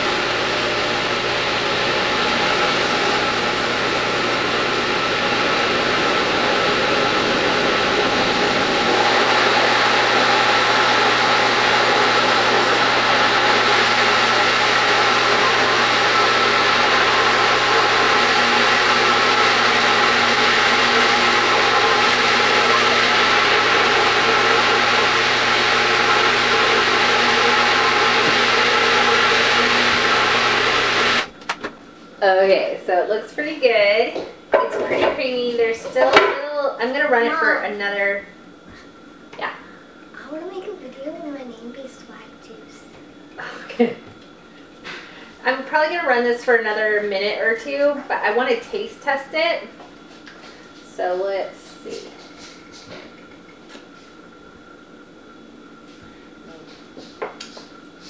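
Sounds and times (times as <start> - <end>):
food processor motor humming: 0.0 - 31.6.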